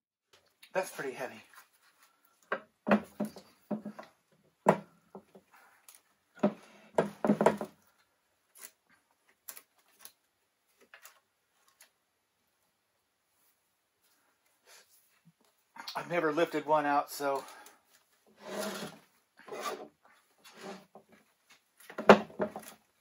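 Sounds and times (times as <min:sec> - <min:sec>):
metal clunks and knocks: 0:02.5 - 0:05.3.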